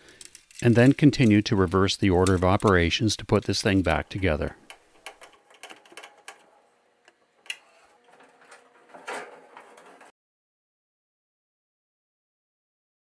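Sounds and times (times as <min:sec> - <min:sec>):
metallic clatter of panel: 0:08.0 - 0:10.1.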